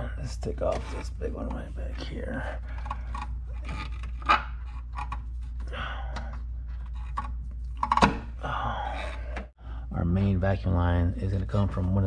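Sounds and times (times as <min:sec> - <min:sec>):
steady low hum: 0:00.0 - 0:12.0
rustling and scraping: 0:00.4 - 0:05.7, 0:06.4 - 0:08.1.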